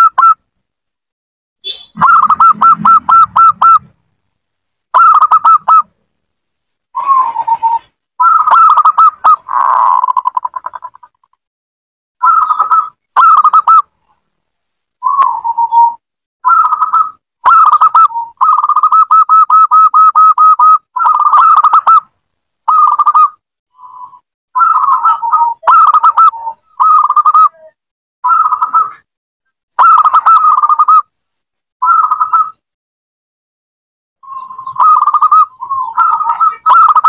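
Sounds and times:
dove cooing: 2.0 - 3.9, 5.0 - 5.9, 7.0 - 11.1, 24.6 - 29.0, 29.8 - 31.0, 34.3 - 37.0.

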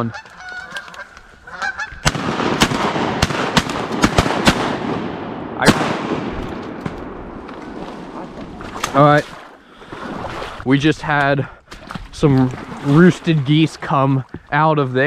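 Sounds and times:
geese honking: 0.0 - 2.1
shotgun shots: 2.0 - 7.4.

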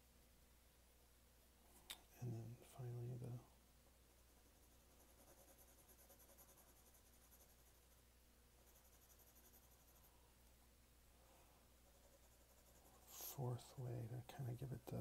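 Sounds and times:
pencil scratching on paper: 4.2 - 8.0, 8.6 - 10.1, 11.8 - 15.0.

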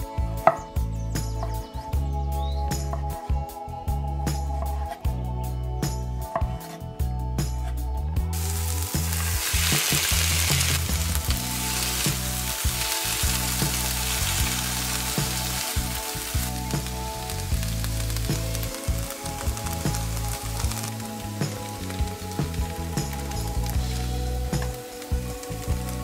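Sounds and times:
spatula stirring vegetables: 8.4 - 22.5
vegetables sizzling in frying pan: 8.4 - 26.0.

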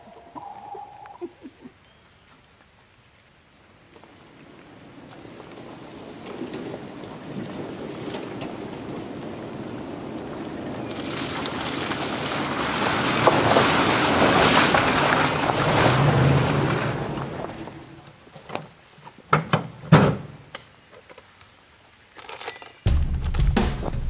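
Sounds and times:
tyres splashing through water: 10.4 - 17.8
knocks and thumps: 22.9 - 24.0.

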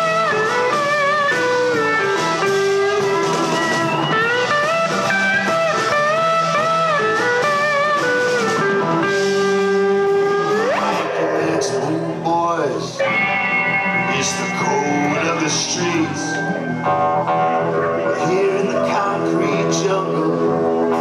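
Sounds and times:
blues-rock band playing: 0.0 - 21.0
electric guitar lead: 0.0 - 21.0.

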